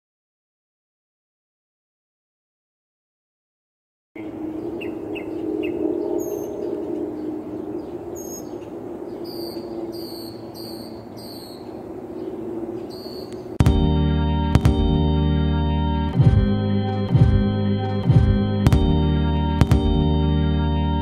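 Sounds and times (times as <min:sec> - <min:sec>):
high repeated bird calls: 0:04.2 - 0:13.6
birds chirping: 0:04.2 - 0:21.0
steady low hum: 0:04.2 - 0:21.0.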